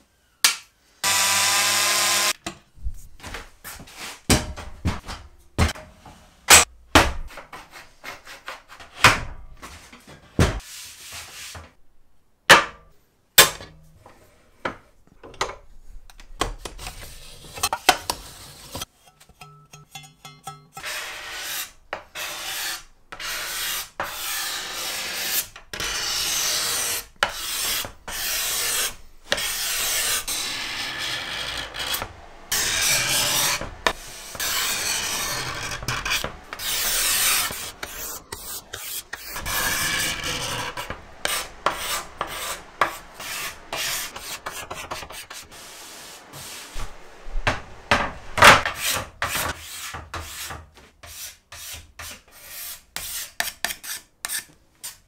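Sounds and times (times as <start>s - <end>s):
scraper rasping on wood: 22.2s - 45.5s.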